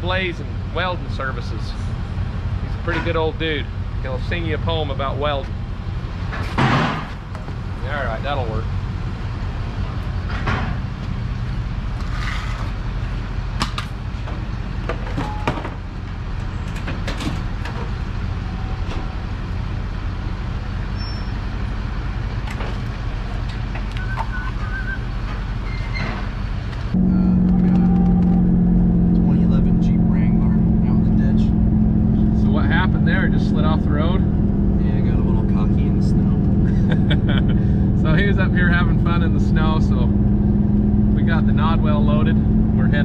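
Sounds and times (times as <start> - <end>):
low engine rumble: 0.0 - 43.0
metal clanks and knocks: 6.3 - 7.2, 10.2 - 10.9
pickup engine drone from cabin: 26.9 - 38.2.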